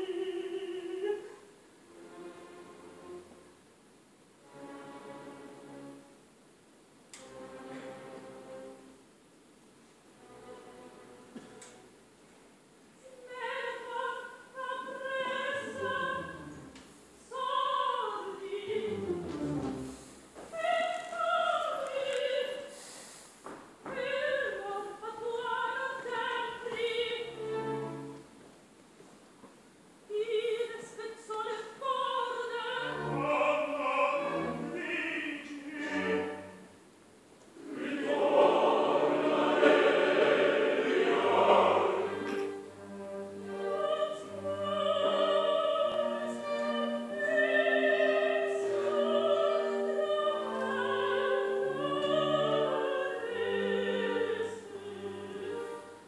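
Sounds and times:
soprano singing: 0:00.0 - 0:03.4, 0:13.0 - 0:22.8, 0:23.8 - 0:28.3, 0:30.1 - 0:36.8, 0:37.6 - 0:56.0
women's chorus singing: 0:13.0 - 0:19.9, 0:30.4 - 0:36.7, 0:37.6 - 0:42.7, 0:43.5 - 0:56.0
orchestra playing: 0:18.6 - 0:20.2, 0:27.2 - 0:28.4, 0:32.7 - 0:36.8, 0:37.6 - 0:56.0.

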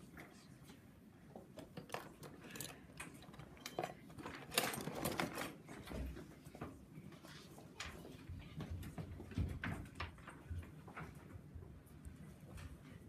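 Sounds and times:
wooden tools clattering in plastic tub: 0:01.8 - 0:06.2.

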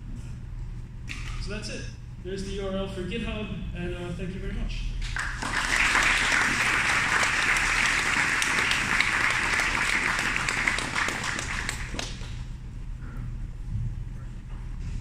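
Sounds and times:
audience applauding: 0:05.1 - 0:12.4.

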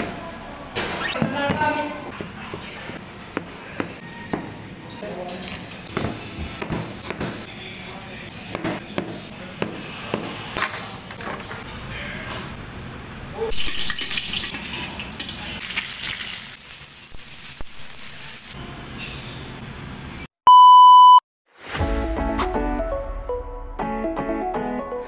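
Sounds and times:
music: 0:05.9 - 0:09.3, 0:21.6 - 0:25.0
vegetables sizzling in a wok: 0:15.6 - 0:18.6
electronic beep: 0:20.5 - 0:21.2.

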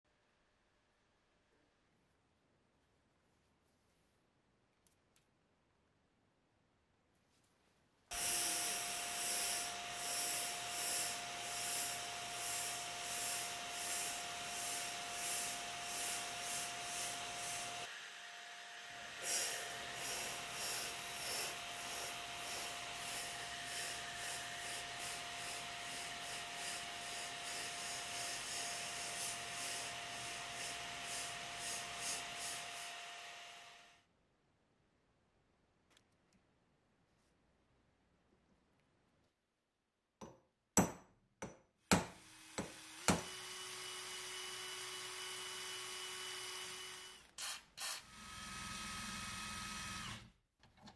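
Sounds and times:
sandblasting gun hissing: 0:19.2 - 0:22.1.

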